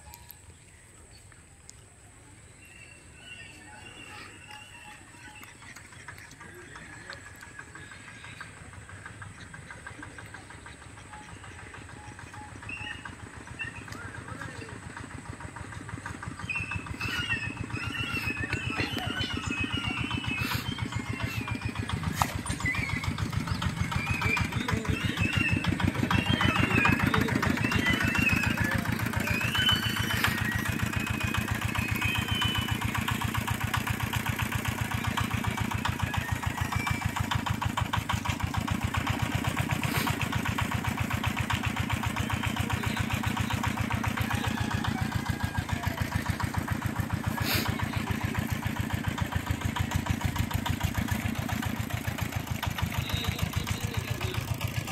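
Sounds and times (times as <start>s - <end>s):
engine idling: 0.0s - 54.9s.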